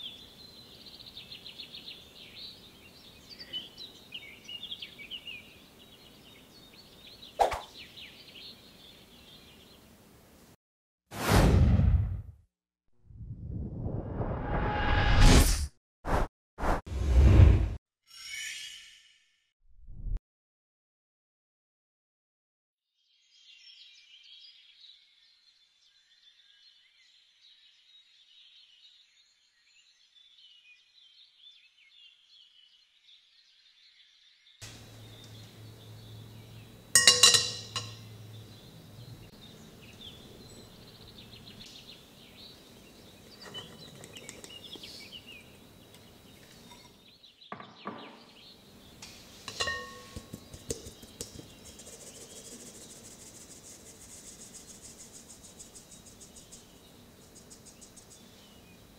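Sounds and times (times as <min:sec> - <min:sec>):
dishes knocking and clinking: 0:36.2 - 0:38.4, 0:43.4 - 0:44.6, 0:46.4 - 0:48.3, 0:49.5 - 0:51.7
kitchenware clink: 0:36.2 - 0:38.4, 0:43.4 - 0:44.5, 0:46.4 - 0:47.0, 0:49.4 - 0:51.4.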